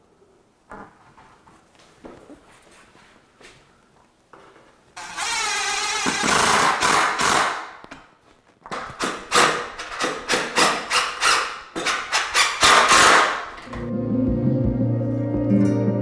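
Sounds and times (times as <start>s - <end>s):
impact driver driving screw: 5.0s - 7.8s, 8.7s - 13.7s.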